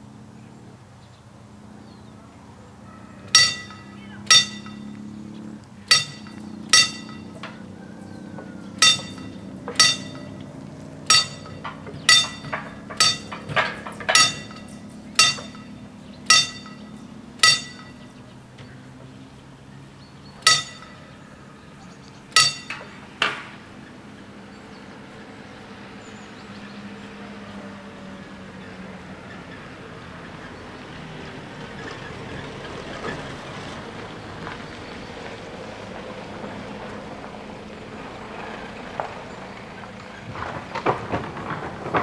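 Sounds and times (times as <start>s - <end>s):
level crossing warning bell: 2.9s - 25.2s
low steady hum: 3.3s - 8.1s, 8.8s - 23.9s.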